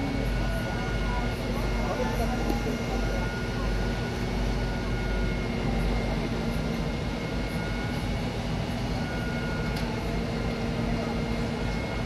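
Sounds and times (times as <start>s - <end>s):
faint whining tones: 0.0s - 12.0s
fire truck engine and pump drone: 0.0s - 12.0s.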